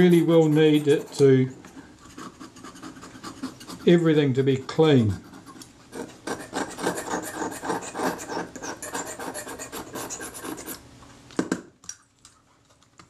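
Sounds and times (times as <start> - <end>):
blade scraping metal: 5.3 - 10.8.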